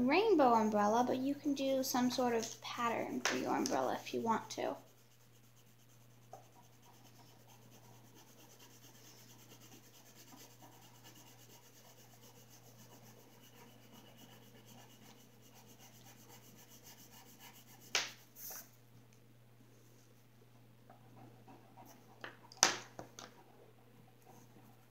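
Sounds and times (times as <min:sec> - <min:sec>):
low steady hum: 0:00.0 - 0:24.9
pencil scribbling on paper: 0:02.5 - 0:18.6.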